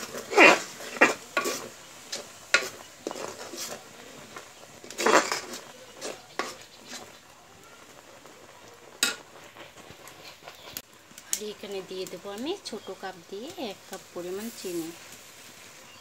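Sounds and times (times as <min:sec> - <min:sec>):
metal spoon scraping a pot: 0:00.0 - 0:07.2.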